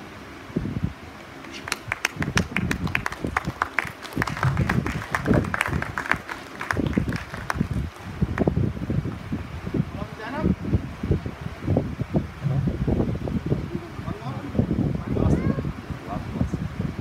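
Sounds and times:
audience applauding: 0:01.4 - 0:08.5
people talking: 0:13.6 - 0:16.6.

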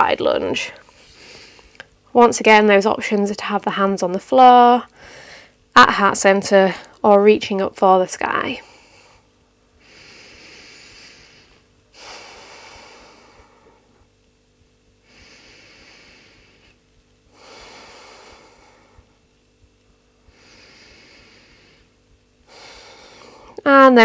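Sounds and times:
person breathing deeply: 0:05.0 - 0:05.6, 0:08.6 - 0:14.0, 0:15.0 - 0:19.2, 0:20.2 - 0:23.6.

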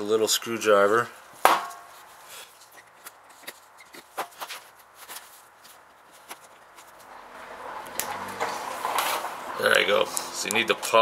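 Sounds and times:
screwdriver ticking and scraping metal: 0:02.6 - 0:04.2.

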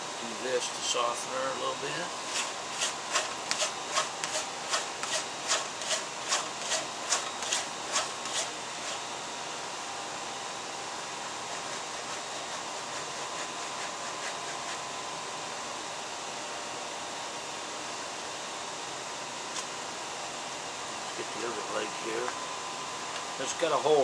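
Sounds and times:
steady background hiss: 0:00.0 - 0:16.8
hide scraping over tool edge: 0:02.2 - 0:09.1, 0:11.2 - 0:14.9.

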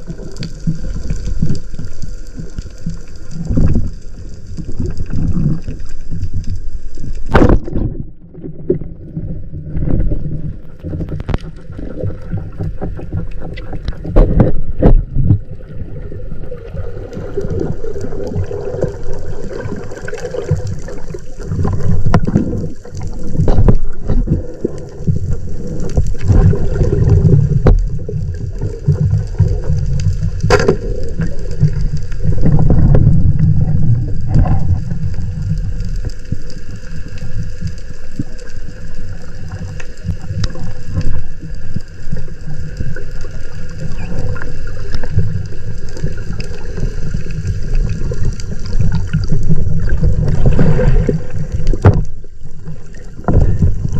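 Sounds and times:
underwater rumbling and gurgling: 0:00.0 - 0:53.9.

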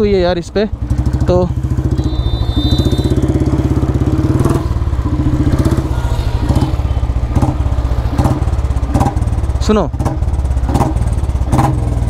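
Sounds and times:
motorcycle engine pulsing: 0:00.0 - 0:12.0
thin high whistle tone: 0:02.0 - 0:07.0.

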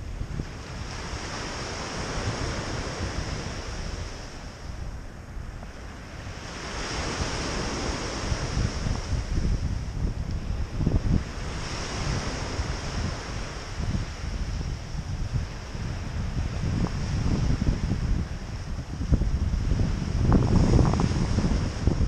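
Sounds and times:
wind buffeting microphone: 0:00.0 - 0:22.0
waves washing up pebble beach: 0:06.3 - 0:09.6.

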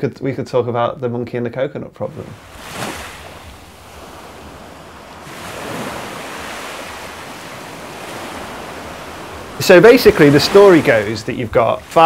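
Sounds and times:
ocean waves washing: 0:02.0 - 0:12.0.

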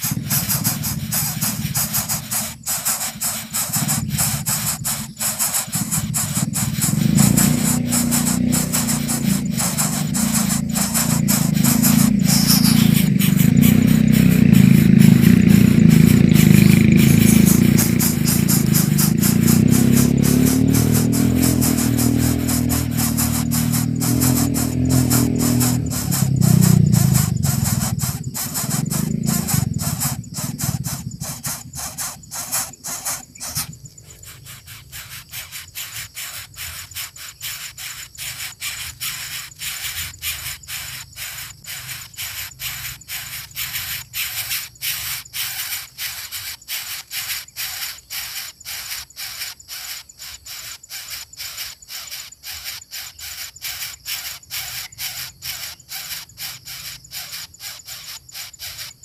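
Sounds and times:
sharp clicks: 0:00.0 - 0:40.4.

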